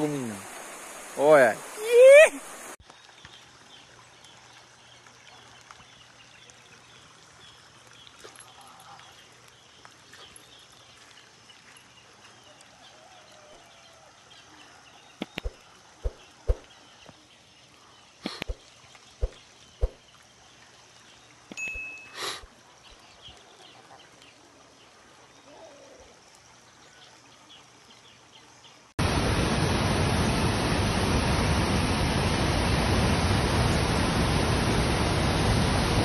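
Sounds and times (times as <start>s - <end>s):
water rushing: 0.0s - 2.8s, 18.1s - 23.5s, 29.0s - 36.0s.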